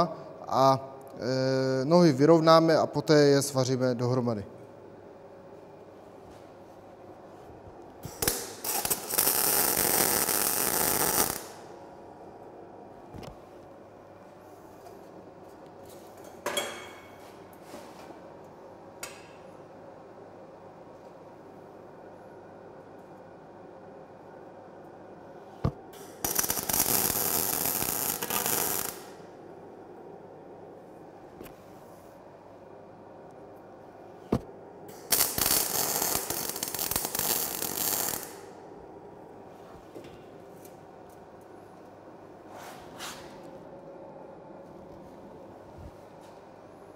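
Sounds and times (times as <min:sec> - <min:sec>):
steady low hiss: 0:00.0 - 0:16.3
crackling welding arc: 0:08.0 - 0:11.7, 0:26.0 - 0:29.2, 0:34.9 - 0:38.6.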